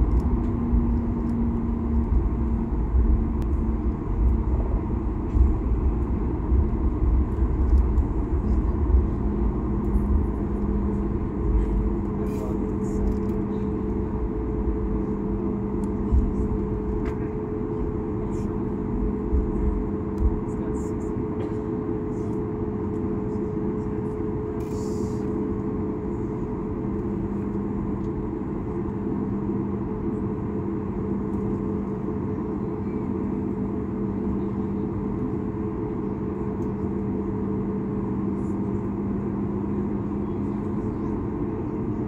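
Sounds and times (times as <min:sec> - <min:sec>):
low rumble from wheels: 0:00.0 - 0:21.1
jet engines at low power: 0:00.0 - 0:42.0.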